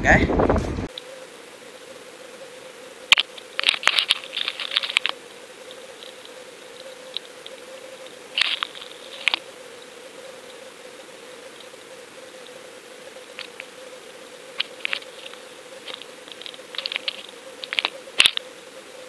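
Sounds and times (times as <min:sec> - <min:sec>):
faint steady hum: 0:00.3 - 0:19.0
sharp crackling clicks underwater: 0:14.6 - 0:18.4.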